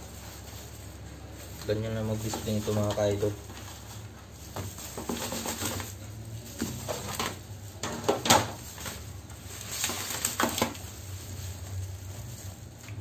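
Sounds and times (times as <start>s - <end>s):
metal trays knocking and scraping: 6.6s - 8.6s.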